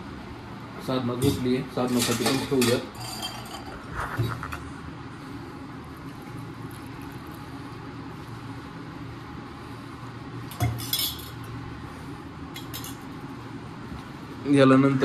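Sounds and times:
steady low hum: 0.0 - 15.0
kitchen utensils clattering: 1.2 - 3.8.

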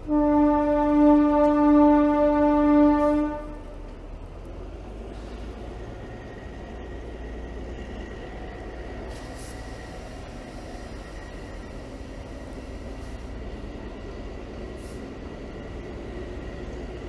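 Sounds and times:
locomotive horn blast: 0.0 - 3.9
train rumbling: 0.0 - 17.0.

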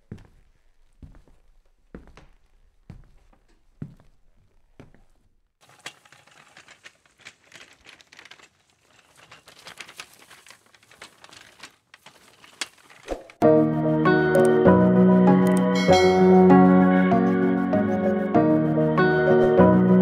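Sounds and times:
dense crackling clicks: 5.6 - 13.4.

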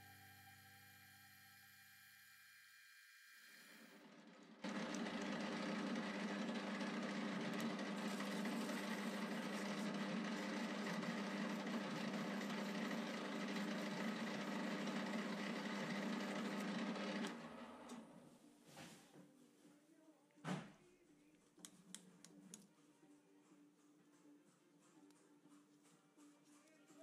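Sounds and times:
metal lathe humming and whining: 0.0 - 17.6.

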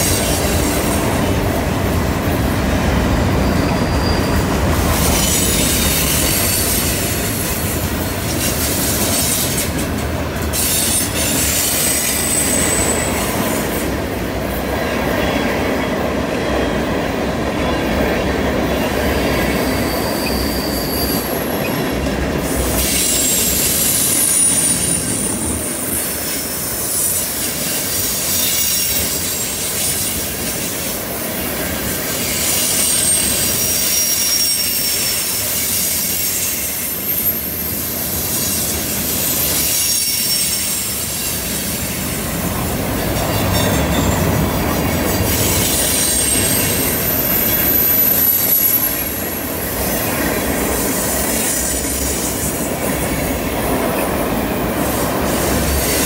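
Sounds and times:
train wheels rumbling on rails: 0.0 - 56.0
wheel squeal: 3.2 - 7.2, 10.5 - 13.4, 19.3 - 26.0, 26.6 - 30.6, 32.1 - 41.8, 43.2 - 49.9.

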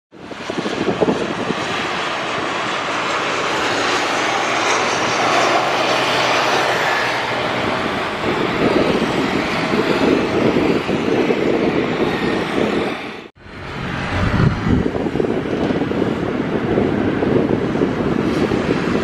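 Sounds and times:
jet engine roar: 0.1 - 19.0
low rough rumble: 7.3 - 19.0.

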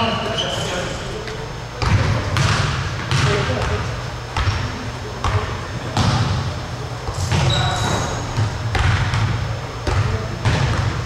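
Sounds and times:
basketballs bouncing on wooden floor: 1.8 - 11.0
high squeak: 7.2 - 8.3.

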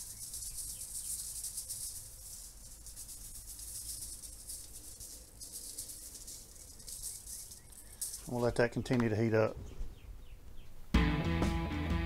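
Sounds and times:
seasoning shaker rattling: 0.0 - 8.6.

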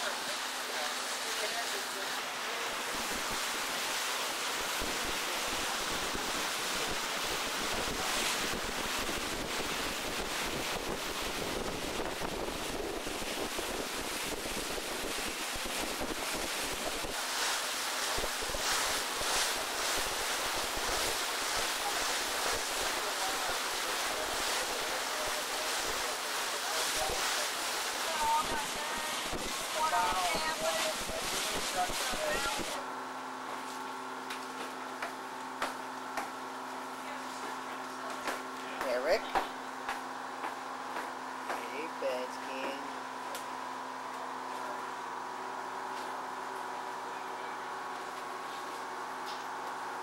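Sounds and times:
water rushing past boat: 0.0 - 32.9.

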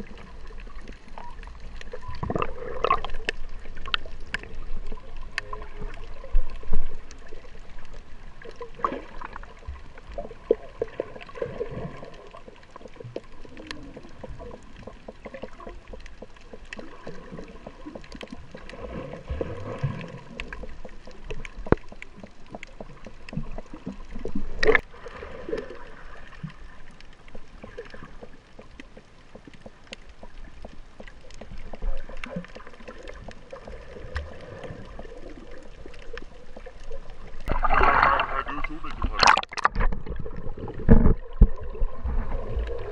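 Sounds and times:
faint underwater clicks: 0.0 - 42.9
underwater water movement: 0.0 - 42.9.

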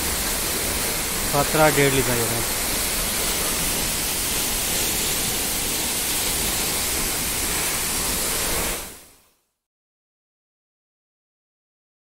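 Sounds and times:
waterfall pouring onto rocks: 0.0 - 9.1.

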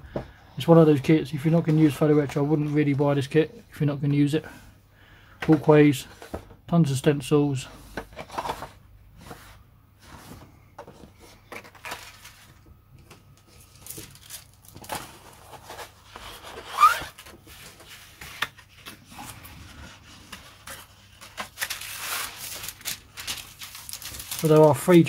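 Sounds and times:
stiff paper rustling: 13.4 - 25.0.

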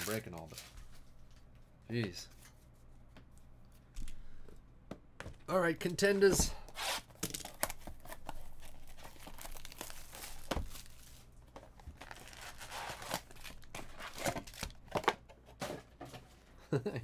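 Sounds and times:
cellophane tearing and crinkling: 0.0 - 0.8, 6.8 - 15.2.

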